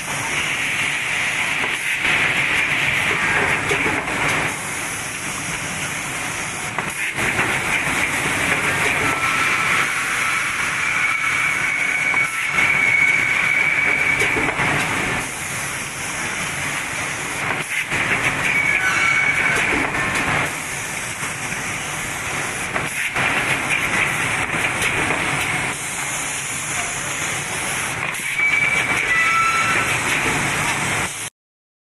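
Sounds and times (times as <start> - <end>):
high machine whine: 0.0 - 31.1
machine mechanical din: 6.7 - 10.0, 17.4 - 20.5.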